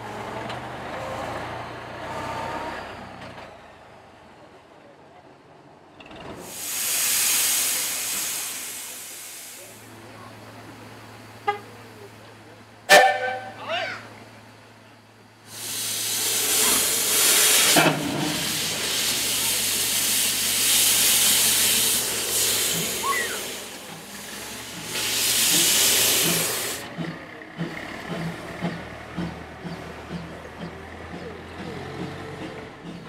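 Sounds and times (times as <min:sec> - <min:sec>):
steam locomotive hissing steam: 0:06.4 - 0:12.1, 0:12.9 - 0:13.5, 0:15.4 - 0:27.0.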